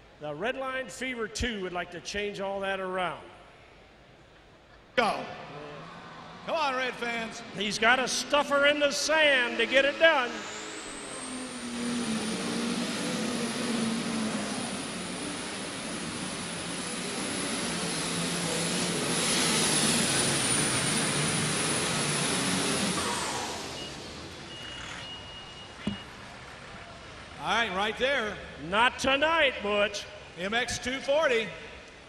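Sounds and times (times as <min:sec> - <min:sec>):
tractor engine roaring: 0:05.0 - 0:30.8
turbocharger whine: 0:05.2 - 0:29.0.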